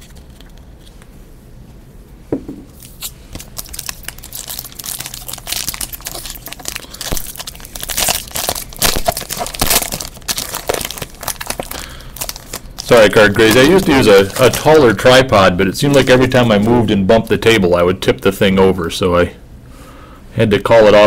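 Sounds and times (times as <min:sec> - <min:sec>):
soft knock: 0:02.3 - 0:02.7
wrapper tearing and crinkling: 0:02.8 - 0:15.2, 0:15.8 - 0:16.8.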